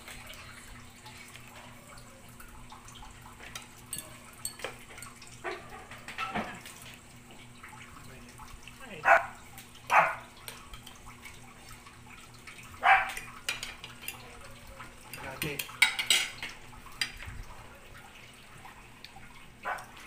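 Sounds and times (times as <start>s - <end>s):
cutlery clinking on plates: 3.5s - 6.6s, 13.1s - 14.3s, 15.1s - 17.2s.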